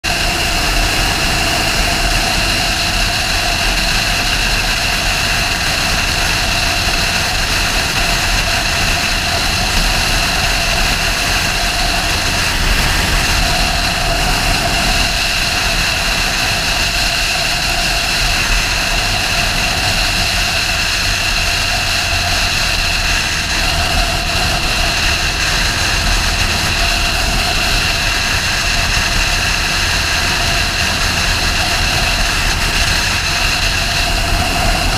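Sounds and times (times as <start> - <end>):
motorcycle engine running: 0.0 - 34.9
wind on microphone: 0.0 - 34.9.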